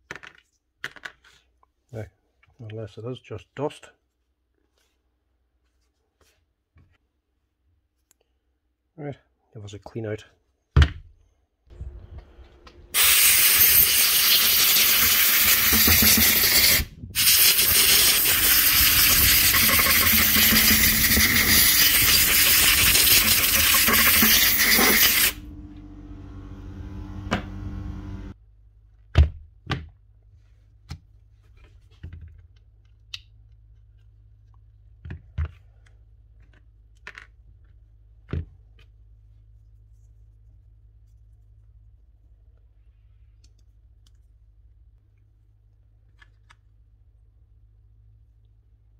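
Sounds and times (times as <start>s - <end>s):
compressed air hissing: 12.9s - 25.5s.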